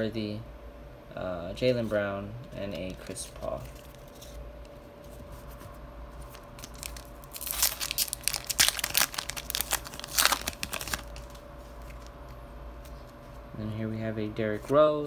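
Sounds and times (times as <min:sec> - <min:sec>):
plastic wrapper tearing and crinkling: 0:06.2 - 0:12.2.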